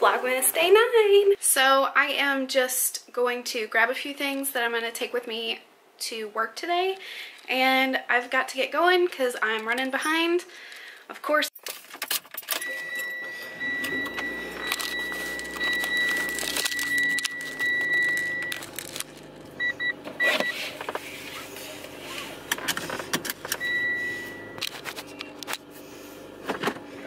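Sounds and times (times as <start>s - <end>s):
short beeps: 12.6s - 18.6s, 19.6s - 20.6s, 23.6s - 24.6s
car warning chime: 12.6s - 20.6s, 23.5s - 24.7s
car engine humming: 12.7s - 27.0s
clicks and rustling: 13.9s - 21.0s.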